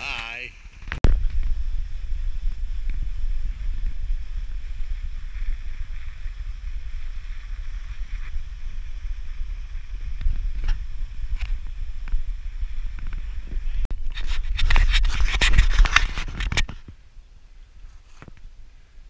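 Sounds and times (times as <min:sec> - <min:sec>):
wind rumble on microphone: 0:00.0 - 0:19.0
skis scraping on snow: 0:01.8 - 0:16.3.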